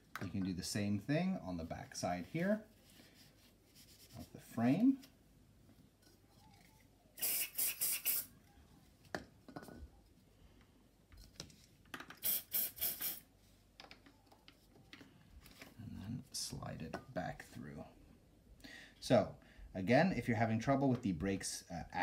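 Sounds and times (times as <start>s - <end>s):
aerosol spray hissing: 7.2s - 8.3s, 12.2s - 13.3s.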